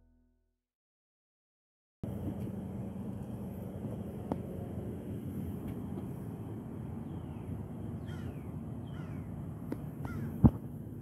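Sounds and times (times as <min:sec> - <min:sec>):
low outdoor hum: 0:02.0 - 0:11.0
crow cawing: 0:08.0 - 0:09.3, 0:10.0 - 0:10.4.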